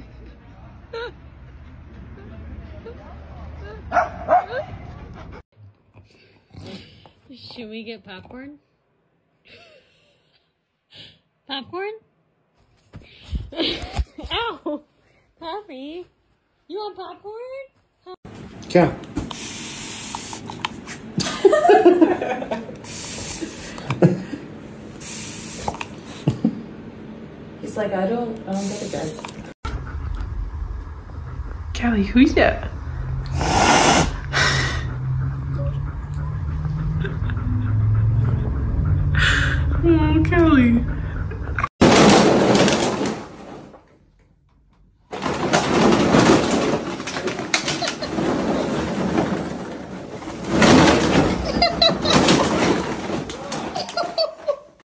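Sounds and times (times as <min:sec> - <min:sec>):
plastic bottles crinkling and clattering: 0:41.8 - 0:44.0, 0:45.1 - 0:54.6.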